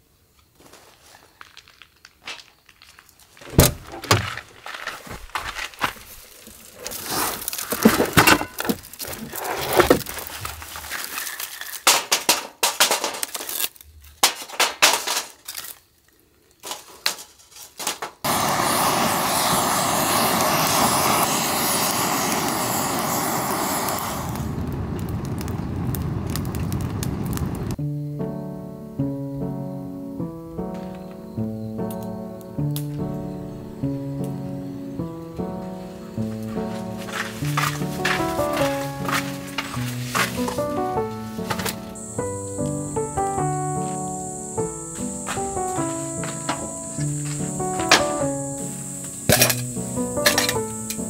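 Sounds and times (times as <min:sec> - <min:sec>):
firewood being laid: 0:00.6 - 0:18.4, 0:30.6 - 0:31.2, 0:35.3 - 0:51.0
loud thud: 0:03.5 - 0:04.4
loud rushing of lit fire: 0:05.5 - 0:15.7, 0:16.6 - 0:27.8, 0:35.4 - 0:51.0
metal fire pit clinking: 0:06.7 - 0:15.8, 0:36.3 - 0:51.0.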